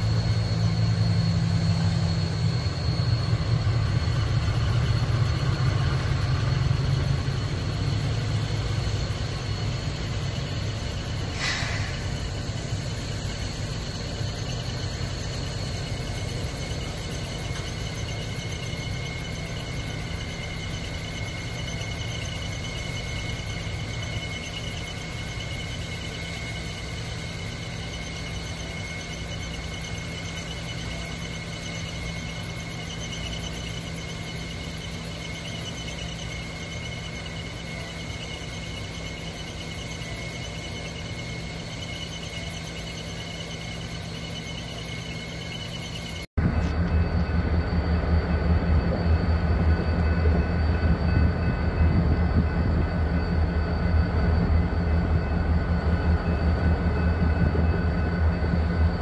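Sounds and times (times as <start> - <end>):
diesel locomotive engine rumbling: 0.0 - 59.0
steel wheels squealing on rails: 0.0 - 59.0
brief hiss burst: 11.4 - 12.1.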